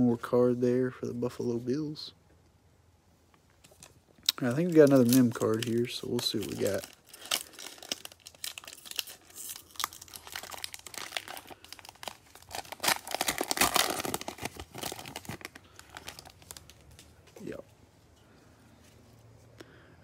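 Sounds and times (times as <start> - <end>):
foil card pack crinkling and tearing: 3.8 - 17.1.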